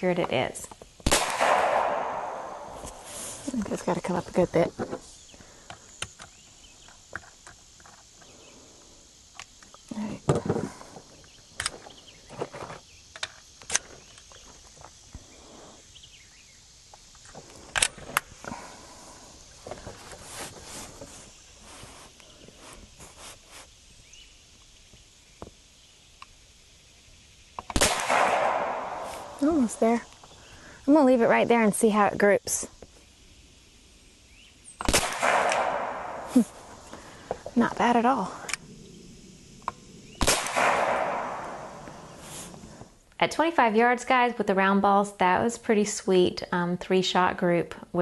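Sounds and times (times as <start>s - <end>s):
air rifle shot: 1.0s - 3.1s, 27.7s - 29.5s, 34.8s - 36.4s, 40.2s - 42.2s
clicks and knocks of rifle handling: 9.3s - 15.0s, 17.2s - 18.3s.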